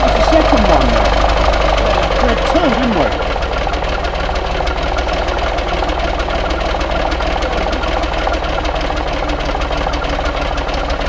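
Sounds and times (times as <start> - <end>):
diesel engine idling with clatter: 0.0 - 11.0.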